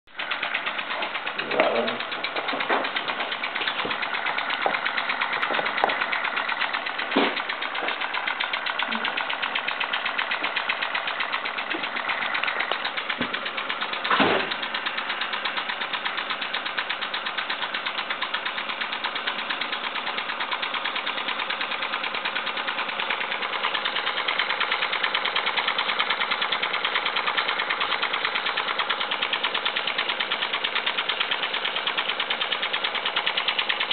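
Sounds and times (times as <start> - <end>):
toy steam engine chuffing: 0.1 - 33.9.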